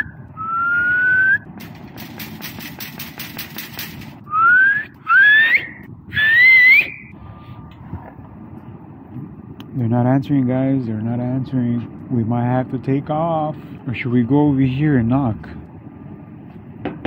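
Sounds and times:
person whistling: 0.0s - 1.4s, 4.3s - 7.2s
metal gate rattling: 1.5s - 4.3s.

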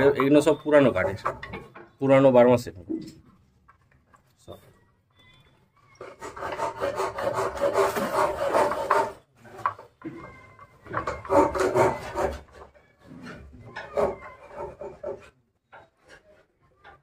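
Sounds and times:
wood scraping on wood: 0.0s - 1.8s, 6.0s - 17.0s.

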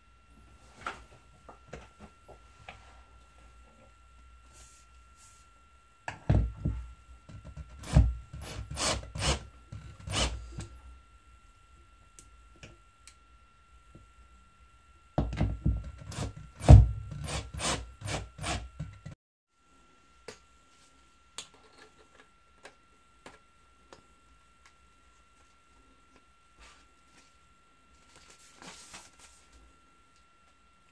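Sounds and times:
cordless drill driving a screw: 7.8s - 9.4s, 10.0s - 10.4s.

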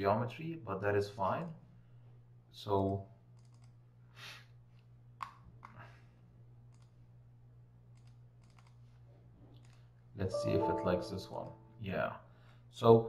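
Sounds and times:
low electrical hum: 0.0s - 13.0s
computer mouse clicks: 3.4s - 3.8s, 6.7s - 7.0s, 7.9s - 8.8s, 9.6s - 9.8s.

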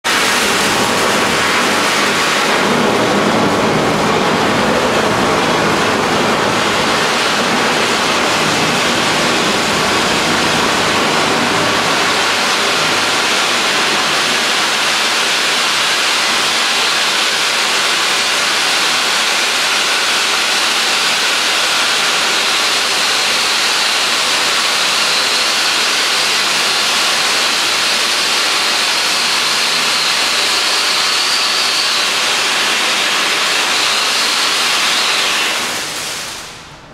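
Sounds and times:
spark fountains hissing: 19.6s - 36.6s.

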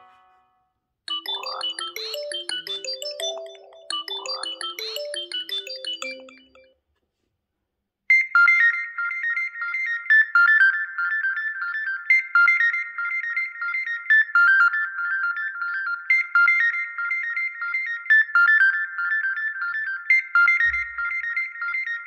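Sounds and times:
high-pitched chiming ringtone: 1.1s - 6.8s
phone ringtone melody: 1.1s - 6.8s.

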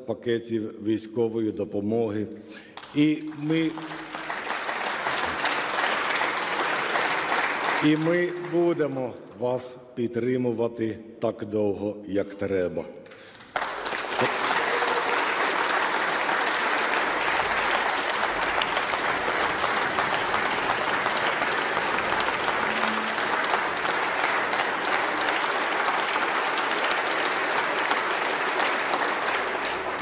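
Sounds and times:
crowd clapping: 2.5s - 9.4s, 13.1s - 30.0s.

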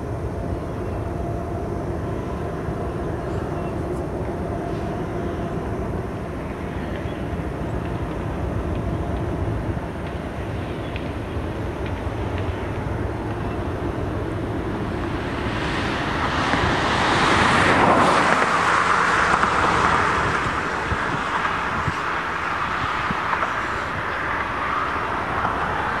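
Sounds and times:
steady low rumble: 0.0s - 26.0s
vehicle passing: 7.3s - 26.0s.

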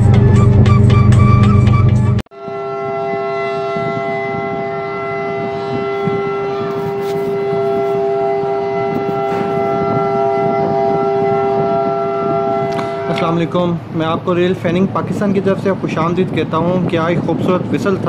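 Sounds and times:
locomotive horn chord: 0.0s - 13.9s
train rumble: 0.0s - 18.0s.

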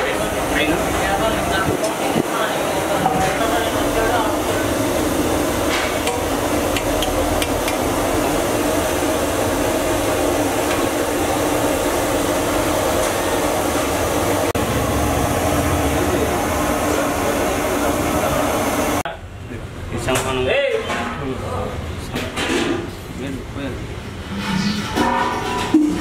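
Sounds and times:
steady loud noise: 0.0s - 20.0s
strainer scraping metal pot: 24.3s - 26.0s.

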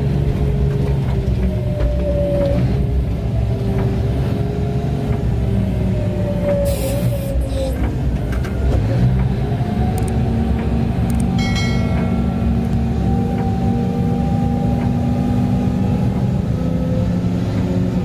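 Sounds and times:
diesel truck engine rumbling: 0.0s - 18.0s
short bright chime: 11.4s - 12.6s.

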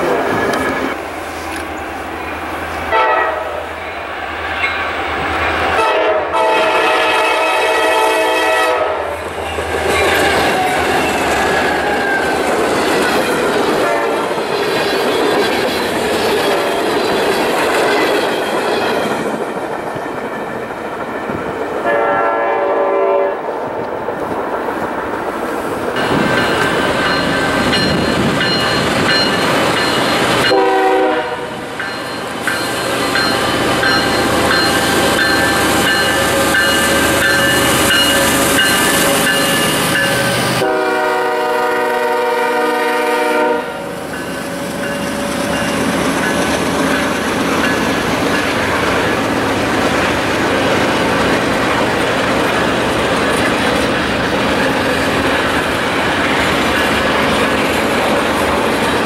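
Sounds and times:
train wheels clickety-clack: 0.0s - 3.0s, 9.2s - 22.5s, 23.4s - 59.0s
freight train rumbling past: 0.0s - 59.0s
locomotive air horn: 2.9s - 3.6s, 5.8s - 9.2s, 13.8s - 14.2s, 21.8s - 23.4s, 30.5s - 31.6s, 40.6s - 43.9s.

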